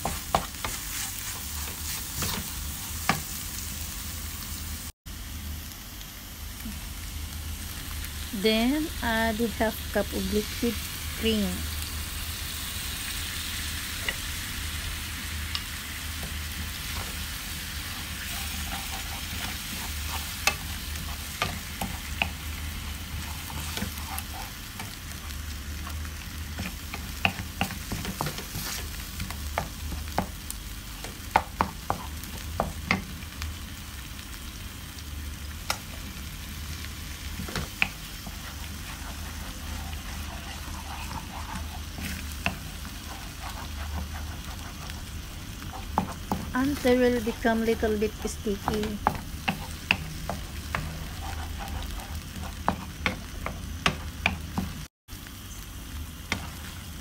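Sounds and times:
spatula stirring and scraping: 0:00.0 - 0:03.7, 0:13.0 - 0:33.2, 0:35.7 - 0:54.9, 0:56.3 - 0:57.0
mushrooms sizzling in frying pan: 0:00.0 - 0:57.0.

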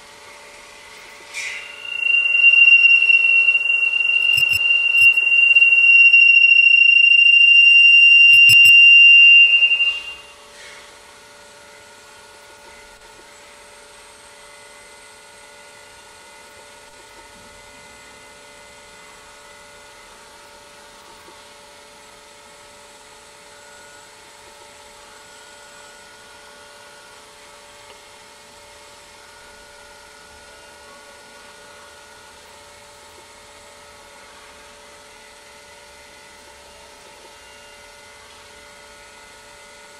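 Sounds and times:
faint steady hum: 0:00.0 - 0:39.9
high-pitched feedback tone: 0:01.4 - 0:10.4.

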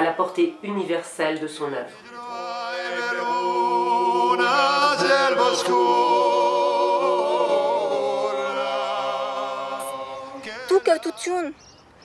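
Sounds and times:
men singing in close harmony: 0:01.9 - 0:11.5.

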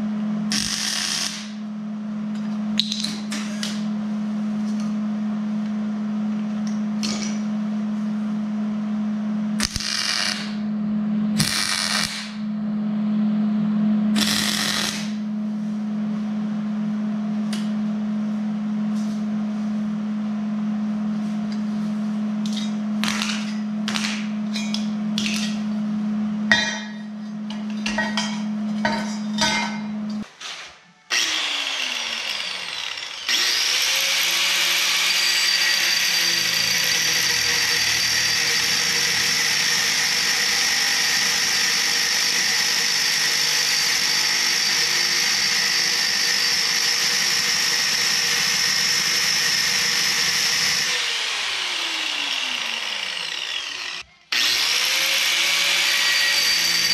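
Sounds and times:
welder low hum: 0:00.0 - 0:02.5, 0:03.3 - 0:30.4, 0:31.1 - 0:56.9
welder arc crackling: 0:00.5 - 0:01.6, 0:09.6 - 0:10.6, 0:11.4 - 0:12.4, 0:14.2 - 0:15.2, 0:23.0 - 0:24.3
angle grinder cutting steel: 0:09.6 - 0:10.6, 0:31.1 - 0:56.9.

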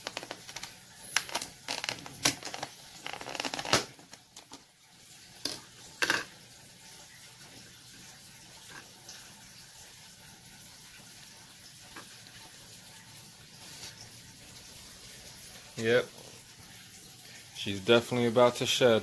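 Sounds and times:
paper towel crinkling: 0:00.0 - 0:04.0
plastic lid crackling: 0:00.0 - 0:04.6.

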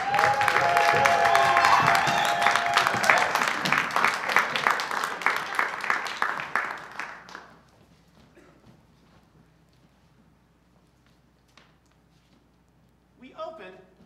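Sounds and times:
rhythmic clapping: 0:00.0 - 0:07.7.

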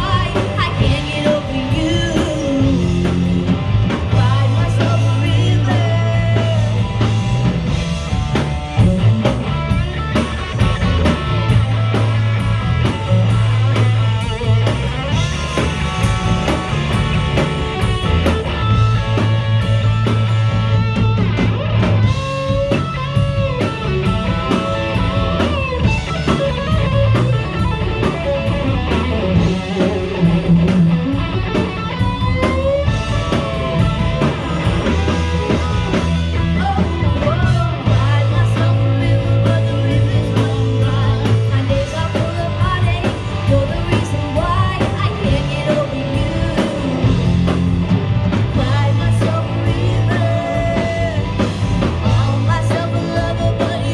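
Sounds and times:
woman singing: 0:00.0 - 0:03.2, 0:04.1 - 0:06.9, 0:36.5 - 0:47.4, 0:48.5 - 0:53.9
drum kit: 0:00.0 - 0:53.9
electric guitars: 0:00.0 - 0:53.9.

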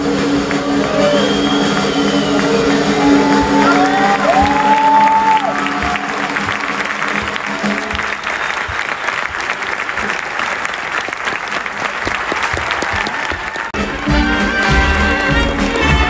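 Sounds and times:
music: 0:00.0 - 0:08.9, 0:13.8 - 0:16.0
crowd applauding: 0:00.0 - 0:16.0.

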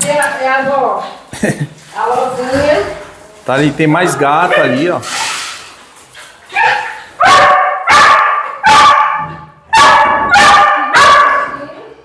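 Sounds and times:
dog barking: 0:04.5 - 0:04.8, 0:06.6 - 0:11.6.

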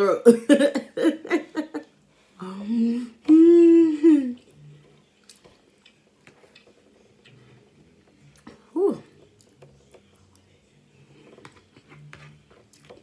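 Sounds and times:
woman humming with food: 0:02.6 - 0:04.5
quiet chewing: 0:04.4 - 0:13.0.

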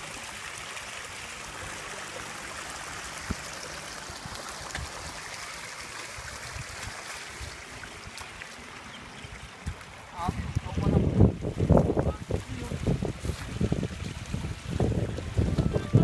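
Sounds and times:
muddy water splashing: 0:00.0 - 0:16.0.

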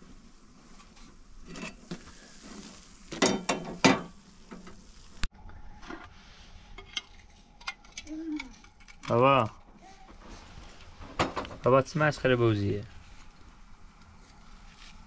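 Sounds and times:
pots and utensils scraping: 0:01.4 - 0:04.8, 0:06.7 - 0:09.2.

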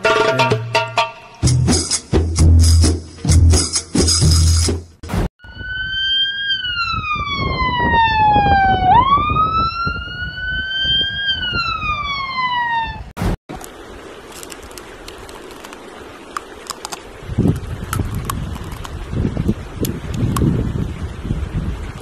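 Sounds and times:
siren-like whistling tone: 0:05.4 - 0:13.1.

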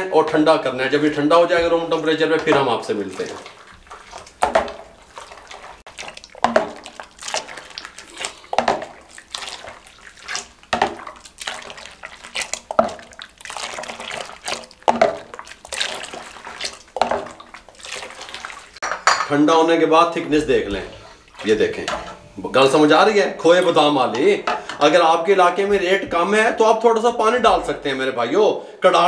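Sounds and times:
milk splashing into saucepan: 0:00.8 - 0:28.2
ladle knocking on pot: 0:04.3 - 0:05.0, 0:06.4 - 0:07.0, 0:08.5 - 0:09.0, 0:10.7 - 0:11.1, 0:12.7 - 0:13.2, 0:14.8 - 0:15.4.

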